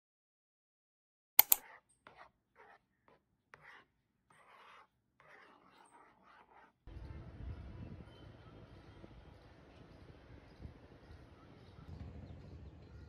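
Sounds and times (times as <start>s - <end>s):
spoon scraping porridge in bowl: 1.4s - 6.9s.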